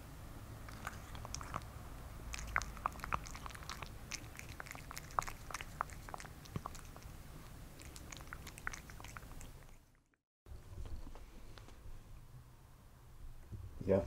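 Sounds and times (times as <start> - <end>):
cat chewing and lapping: 0.6 - 10.2.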